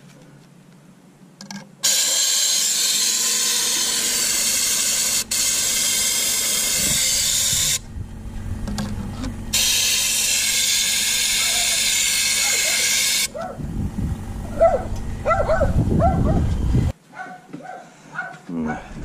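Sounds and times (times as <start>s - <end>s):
compressed-air spray gun hissing: 1.8s - 7.8s, 9.5s - 13.3s.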